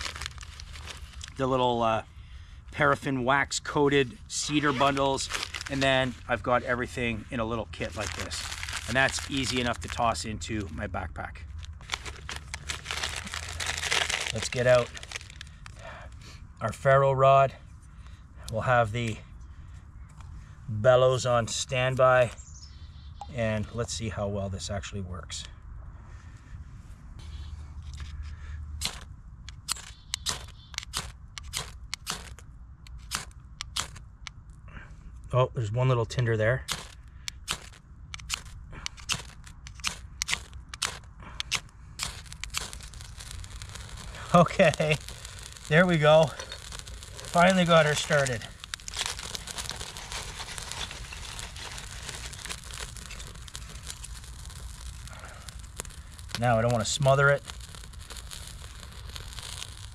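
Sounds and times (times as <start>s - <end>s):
rustling of kindling: 0.0s - 1.4s, 4.3s - 10.8s, 11.5s - 15.8s, 36.7s - 59.8s
small fire crackling: 0.0s - 1.8s, 2.6s - 16.9s, 27.2s - 34.6s, 36.5s - 59.9s
ferro rod scrapes: 36.7s - 59.8s.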